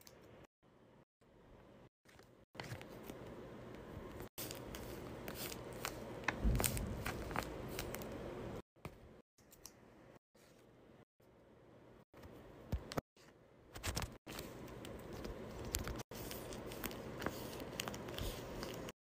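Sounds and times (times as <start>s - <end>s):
tape-covered paper crinkling: 13.8s - 18.9s.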